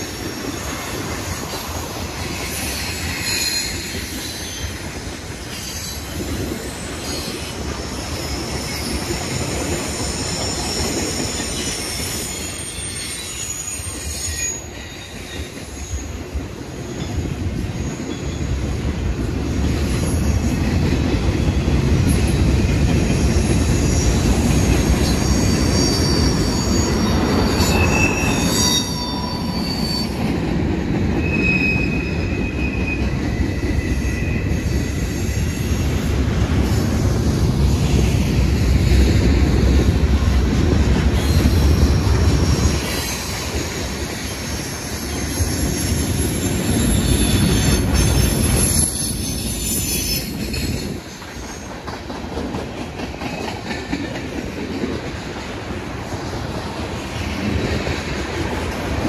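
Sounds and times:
wheels rumbling on rail: 0:00.0 - 0:59.0
high-pitched wheel squeal: 0:02.4 - 0:04.9, 0:05.5 - 0:16.2, 0:23.1 - 0:30.3, 0:31.2 - 0:35.9, 0:44.2 - 0:51.6.

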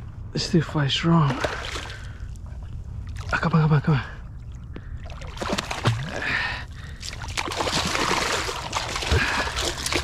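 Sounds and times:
fish thrashing and water splashing: 0:04.4 - 0:10.0.

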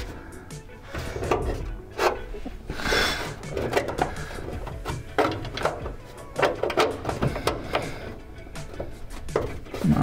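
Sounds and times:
metal parts clicking and knocking: 0:03.4 - 0:09.8.

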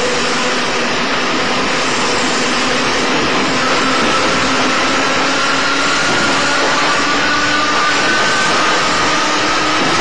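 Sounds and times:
high motor whine: 0:00.0 - 0:10.0
train motor rumble and hiss: 0:00.0 - 0:10.0.

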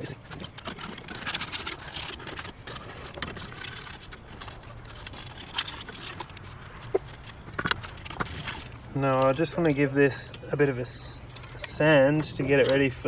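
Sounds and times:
scraper scraping plastic: 0:00.0 - 0:09.8.

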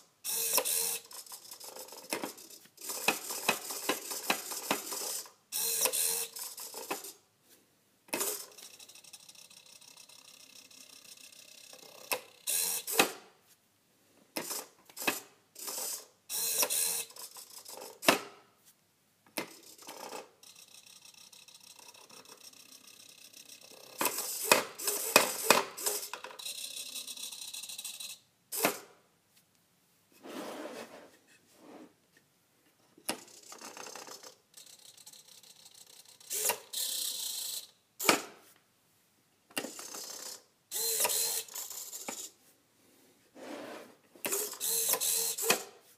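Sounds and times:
small motor whirring: 0:00.3 - 0:07.1, 0:08.2 - 0:13.1, 0:14.5 - 0:18.0, 0:19.5 - 0:28.7, 0:33.2 - 0:37.7, 0:39.6 - 0:42.3, 0:44.3 - 0:45.7.

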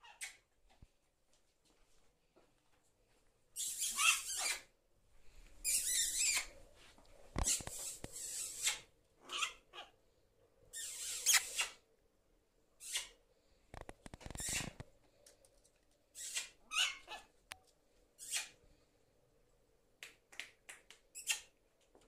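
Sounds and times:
prairie dog yips: 0:03.6 - 0:04.6, 0:07.4 - 0:10.0, 0:16.2 - 0:17.3.

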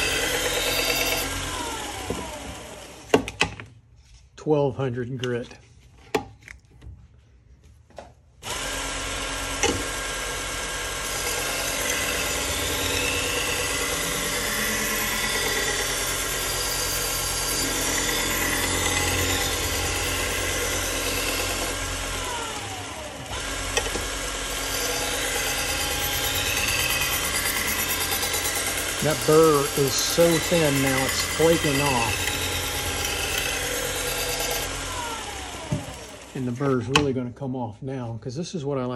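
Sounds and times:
belt sharpener motor running: 0:00.0 - 0:03.2, 0:08.4 - 0:36.5
knife grinding on abrasive belt: 0:24.6 - 0:34.7.

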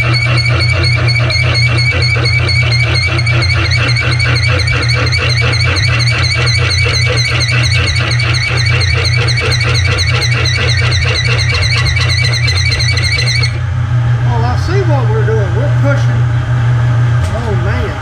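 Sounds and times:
drill bit squealing in metal: 0:00.0 - 0:13.6
milling machine motor hum: 0:00.0 - 0:18.0.

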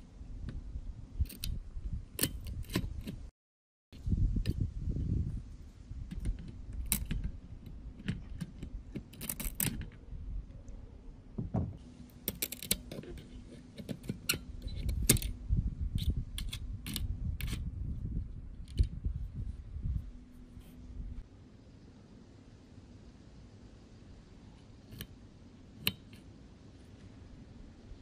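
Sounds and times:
faint steady hum: 0:04.0 - 0:28.0
metal tools clicking and scraping: 0:12.2 - 0:15.4.

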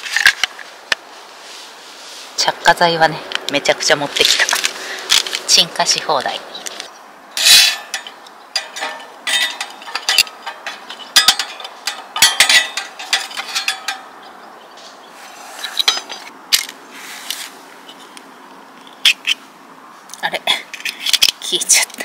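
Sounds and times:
kindling clicking and scraping in stove: 0:07.4 - 0:14.2.

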